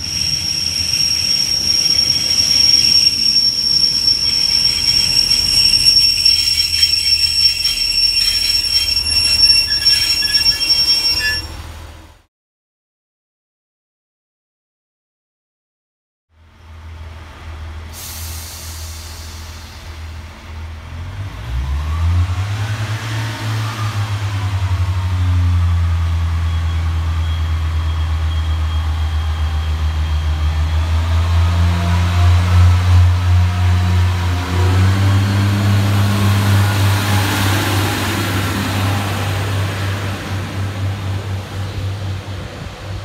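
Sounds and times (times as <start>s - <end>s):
train diesel engine revving: 0.0s - 12.2s, 16.6s - 43.0s.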